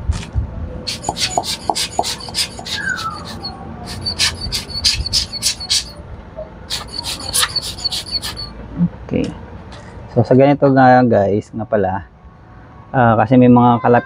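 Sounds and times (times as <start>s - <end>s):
air blower bulb puffing: 0.9s - 6.0s.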